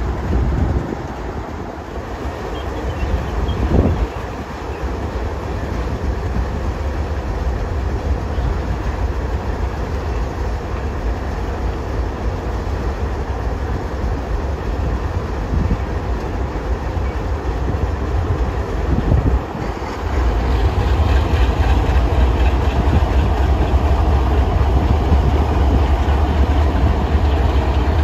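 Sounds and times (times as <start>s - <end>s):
locomotive engine: 0.0s - 28.0s
wheel and rail noise: 0.0s - 28.0s.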